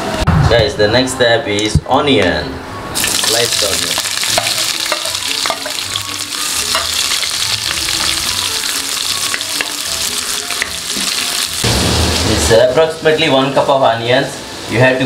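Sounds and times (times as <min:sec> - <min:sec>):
onions sizzling in oil: 0:03.0 - 0:15.0
steel spoon clinking on pot: 0:04.3 - 0:05.9, 0:06.7 - 0:07.3.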